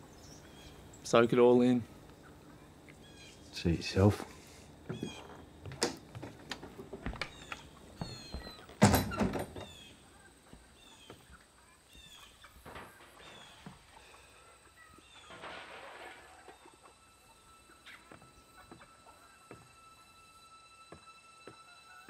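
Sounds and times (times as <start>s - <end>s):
birds chirping: 0.0s - 22.0s
faint held music tones: 0.0s - 22.0s
door banging shut: 8.0s - 9.8s.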